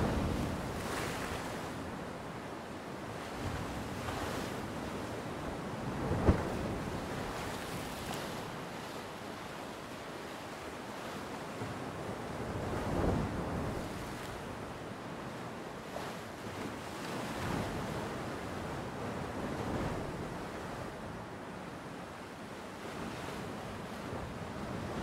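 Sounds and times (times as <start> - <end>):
wind buffeting microphone: 0.0 - 2.0, 5.5 - 8.3
ocean surf washing onto beach: 0.0 - 8.8.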